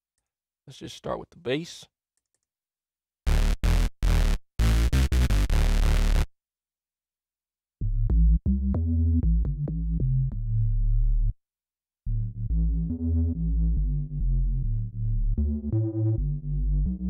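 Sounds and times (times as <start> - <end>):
buzzy synth notes: 3.3 - 6.3
deep synth bass notes: 3.3 - 6.3, 7.8 - 11.3, 12.1 - 17.0.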